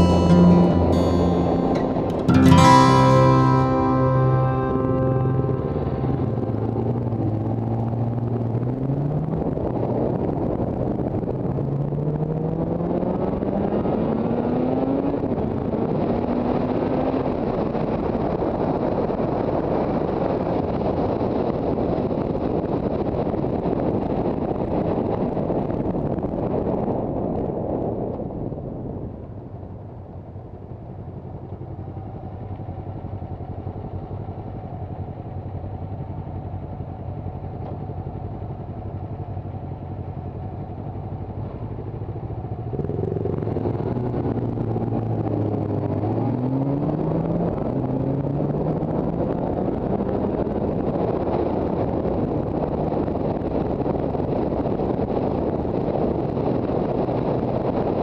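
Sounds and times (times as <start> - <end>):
motorcycle engine accelerating: 2.6 - 18.2, 35.8 - 51.2.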